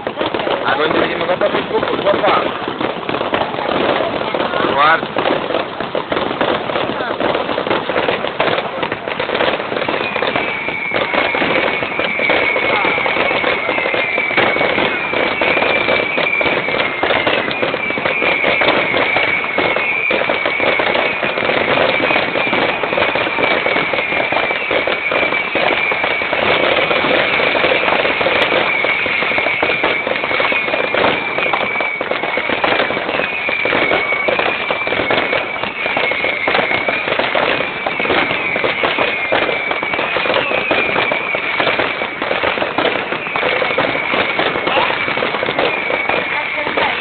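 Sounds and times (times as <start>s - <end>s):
fireworks bangs and crackling: 0.0s - 47.0s
wavering high whistle: 10.0s - 26.4s, 27.2s - 41.9s.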